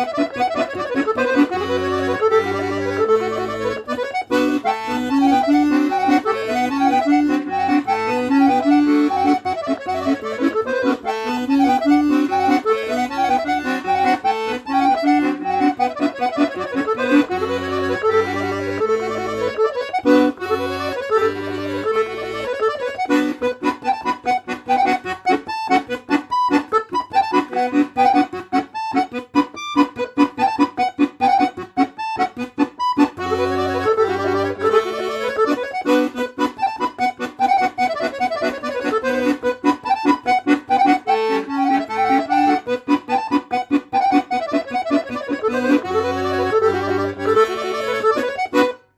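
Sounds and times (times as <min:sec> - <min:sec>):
piano accordion playing: 0:00.0 - 0:48.9.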